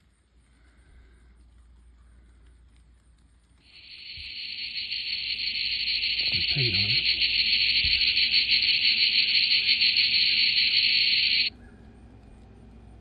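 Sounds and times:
cicada buzzing: 0:03.7 - 0:11.5.

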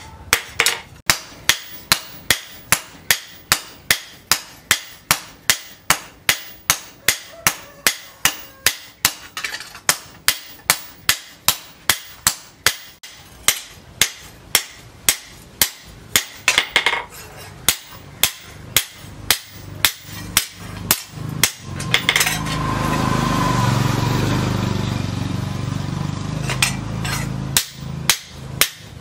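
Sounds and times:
hammers striking metal blade on anvil: 0:00.0 - 0:23.0, 0:26.4 - 0:29.0.

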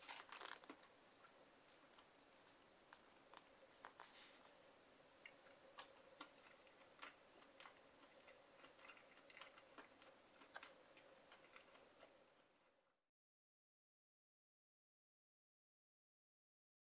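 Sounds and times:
person chewing food: 0:00.0 - 0:12.6
thin steady hum: 0:00.0 - 0:13.1.

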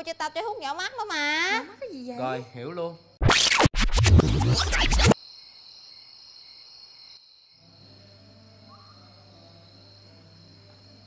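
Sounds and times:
crickets chirping: 0:00.0 - 0:03.2, 0:05.2 - 0:11.0.

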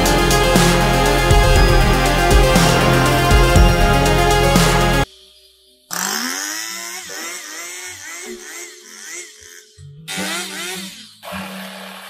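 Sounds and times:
chainsaw cutting into wood: 0:05.9 - 0:11.0.

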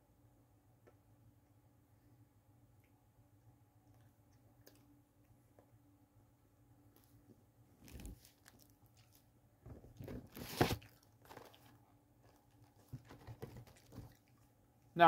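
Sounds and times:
cardboard box rustling and scraping: 0:10.0 - 0:10.8.

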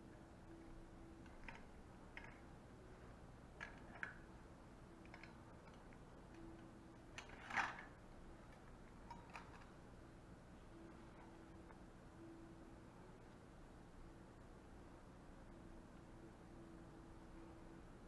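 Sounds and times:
metal instruments clicking and clinking: 0:05.0 - 0:09.7.

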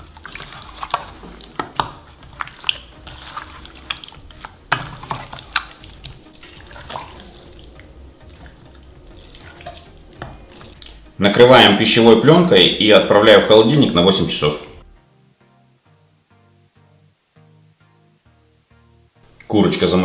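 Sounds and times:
hands kneading wet chicken: 0:00.0 - 0:11.1.

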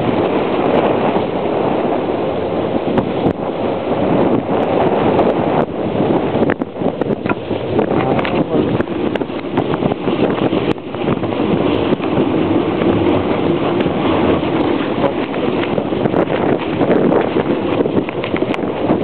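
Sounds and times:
wind buffeting microphone: 0:00.0 - 0:19.0
sled runners scraping on snow: 0:07.0 - 0:19.0.

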